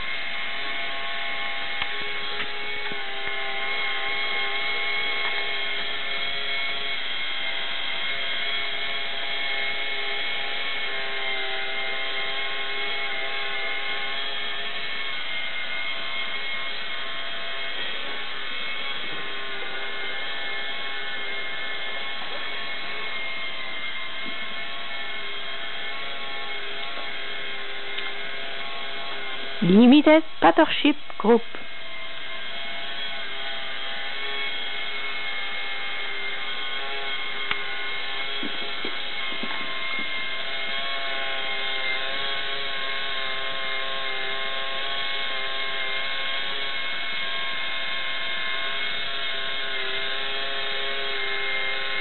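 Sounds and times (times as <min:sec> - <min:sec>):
toy electric motor whine: 0:00.0 - 0:52.0.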